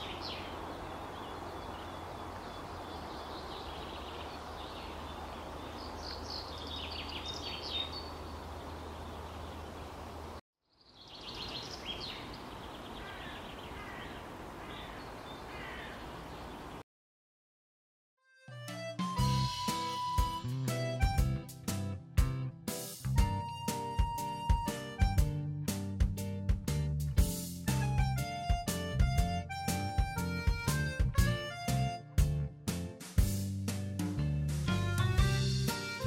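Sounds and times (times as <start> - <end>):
small birds chirping: 0.0 - 16.8.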